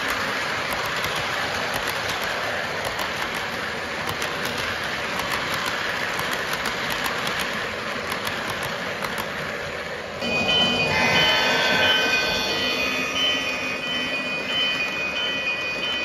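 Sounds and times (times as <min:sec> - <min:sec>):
clicks over rail joints: 0:00.0 - 0:09.4
model train wheels rolling: 0:00.0 - 0:16.0.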